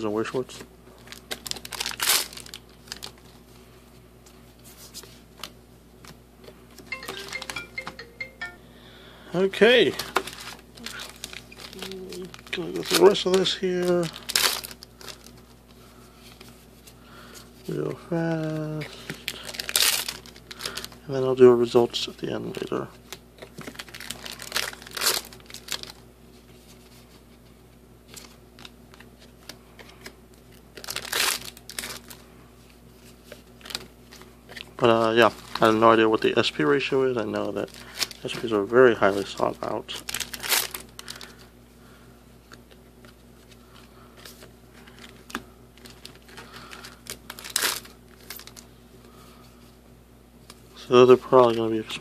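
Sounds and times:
faint steady hum: 0.0s - 52.0s
foil wrappers crinkling: 0.9s - 3.6s, 9.5s - 27.3s, 28.0s - 41.5s, 42.4s - 49.7s
trading cards being handled: 4.2s - 8.6s, 9.8s - 17.8s.

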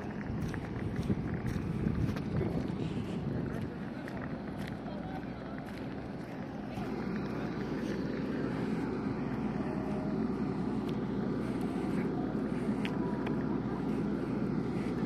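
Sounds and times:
turboprop engine rumble: 0.0s - 15.0s.

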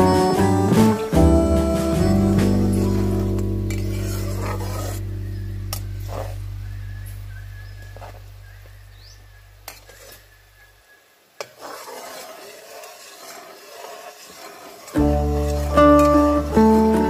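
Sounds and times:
background music: 0.0s - 6.4s, 15.0s - 17.0s
metal spatula scraping wok: 1.8s - 8.3s, 9.6s - 10.4s, 11.4s - 17.0s
syrup bubbling and sizzling: 2.0s - 6.4s, 11.2s - 17.0s.

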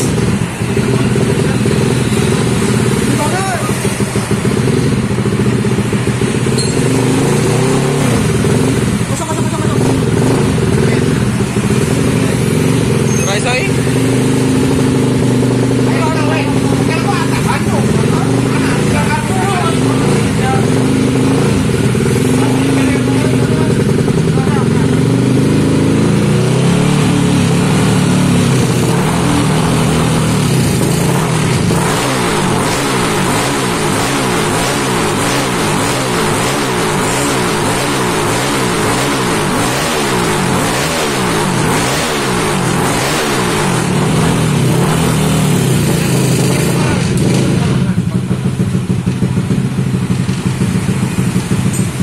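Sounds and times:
scooter engine idling: 0.0s - 31.8s, 43.4s - 52.0s.

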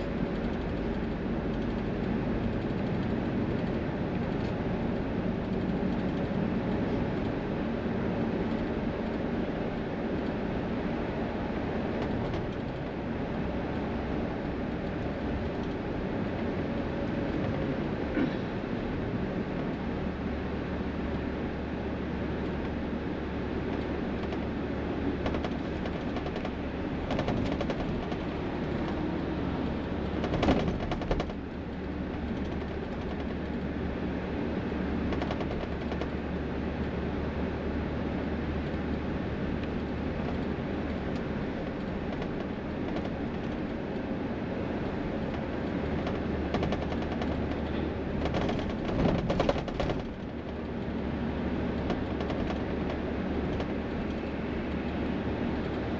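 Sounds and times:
highway traffic rushing: 0.0s - 55.9s
short rapid rattles: 25.2s - 31.4s, 45.9s - 50.6s.

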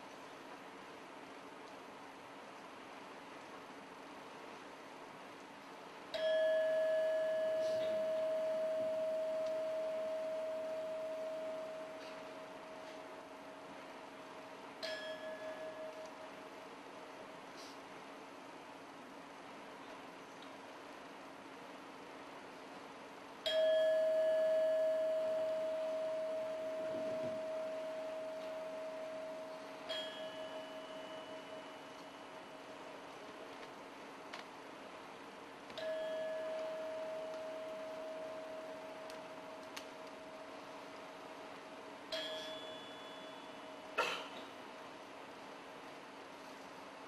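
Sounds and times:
faint hiss: 0.0s - 47.0s
faint low hum: 0.0s - 47.0s
metal bell ringing: 6.1s - 13.2s, 14.8s - 16.1s, 23.5s - 32.8s, 35.8s - 39.6s, 42.1s - 44.0s.

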